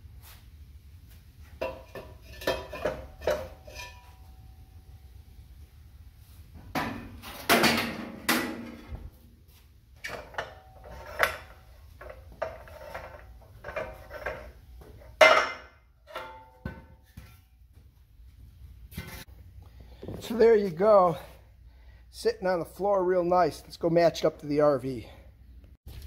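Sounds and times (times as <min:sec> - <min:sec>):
metal pipe clanking: 0:01.6 - 0:04.3, 0:06.7 - 0:09.0, 0:10.0 - 0:17.4.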